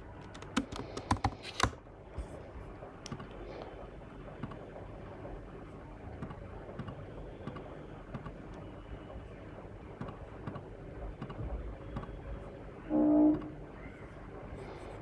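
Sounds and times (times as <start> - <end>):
low background hum: 0.0 - 15.0
computer mouse clicks: 0.2 - 1.8, 3.0 - 3.4, 6.2 - 8.6, 10.0 - 12.2.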